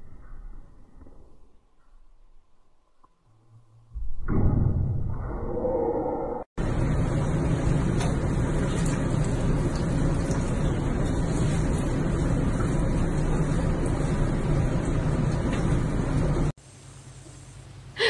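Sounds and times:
water running in a bathtub: 6.6s - 17.7s.

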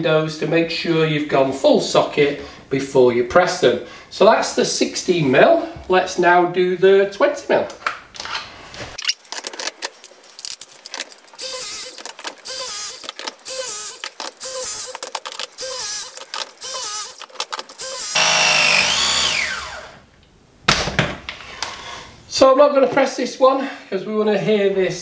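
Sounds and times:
tool jaws clicking: 10.5s - 19.5s
hydraulic press tool pulsing: 11.4s - 15.0s, 15.6s - 20.0s.

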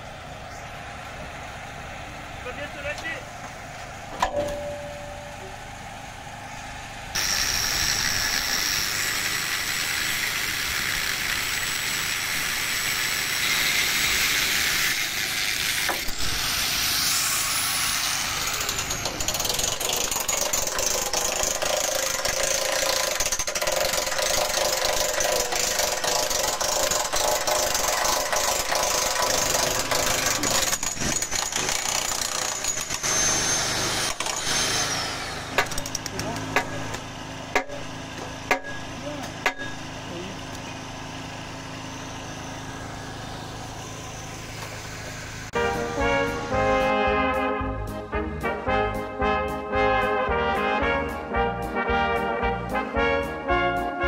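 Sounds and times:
portable generator running: 0.0s - 51.4s
demolition hammer on steel: 18.3s - 40.0s.

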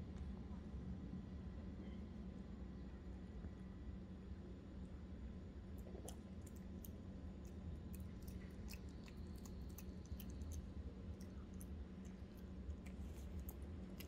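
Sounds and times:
puppy chewing wetly: 5.8s - 14.0s.

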